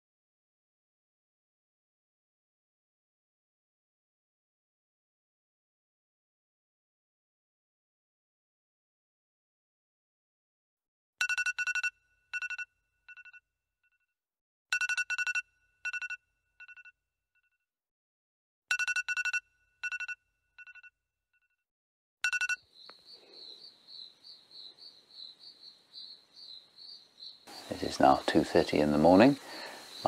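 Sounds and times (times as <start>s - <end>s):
phone ringtone chime: 11.2s - 13.4s, 14.8s - 16.9s, 18.7s - 20.9s, 22.2s - 22.7s
crickets trilling: 22.7s - 30.0s.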